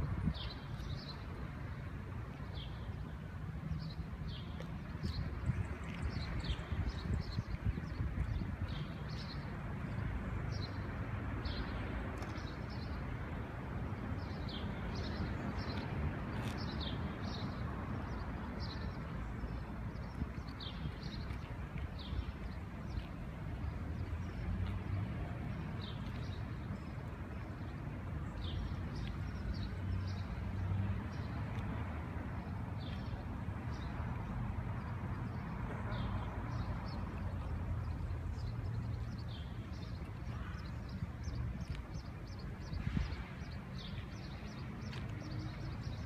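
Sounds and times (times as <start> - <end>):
low traffic rumble: 0.0 - 46.0
small birds chirping: 34.8 - 46.0.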